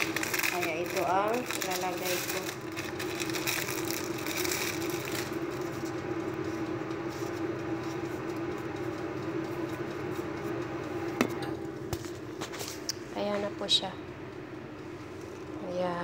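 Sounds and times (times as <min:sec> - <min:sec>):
plastic bag crinkling: 0:00.0 - 0:06.1
machine hum: 0:00.0 - 0:16.0.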